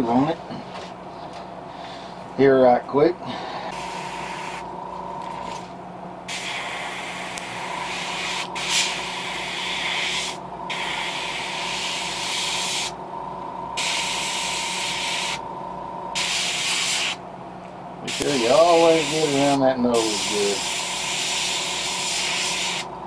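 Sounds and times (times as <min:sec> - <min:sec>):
low hum: 0:03.2 - 0:18.1
airbrush spraying hiss: 0:06.3 - 0:13.0, 0:13.8 - 0:15.4, 0:16.2 - 0:17.2, 0:18.1 - 0:22.9.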